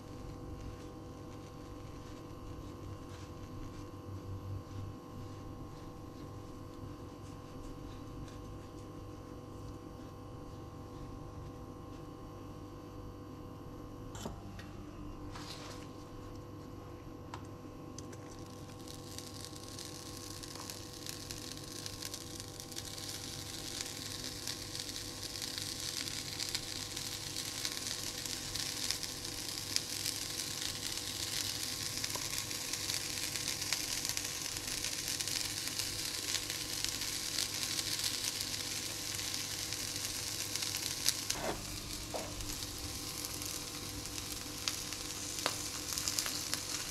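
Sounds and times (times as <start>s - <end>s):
egg sizzling in a pan: 0.0s - 4.0s, 18.0s - 46.9s.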